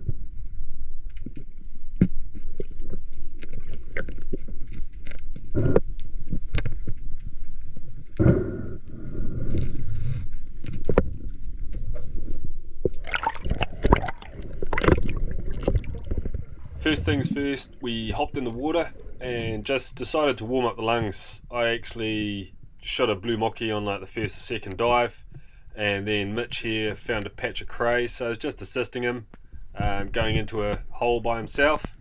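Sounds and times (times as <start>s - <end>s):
underwater rush and gurgle: 12.8s - 20.6s.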